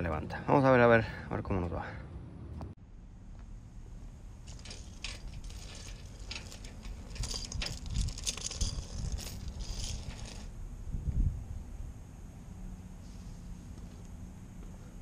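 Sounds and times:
metal chain clinking: 0:04.4 - 0:10.5.

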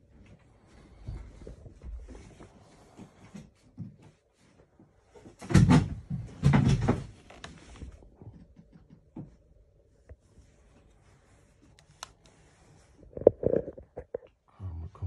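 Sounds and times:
plastic drone clattering and rubbing: 0:11.8 - 0:14.3.

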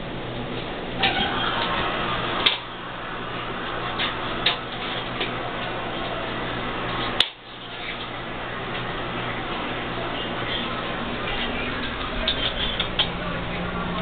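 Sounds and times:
claws scrabbling in bathtub: 0:03.9 - 0:14.0.

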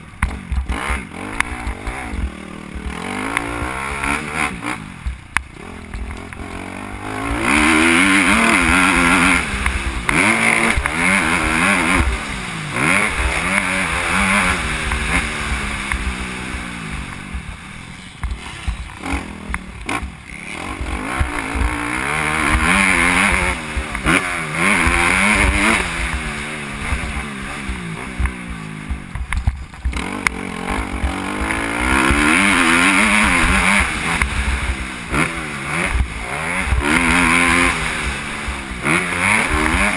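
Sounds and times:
motocross bike engine revving: 0:00.0 - 0:39.9
bike knocks and rattles: 0:22.4 - 0:39.9.

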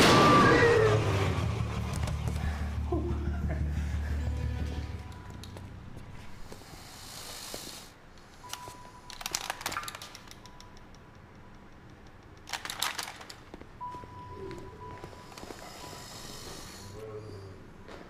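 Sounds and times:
dense crackling clicks: 0:09.1 - 0:13.8.

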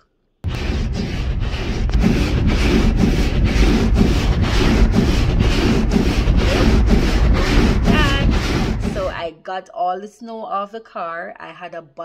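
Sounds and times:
steady low rumble: 0:00.4 - 0:09.2
wipers scraping over ice: 0:00.5 - 0:09.2.

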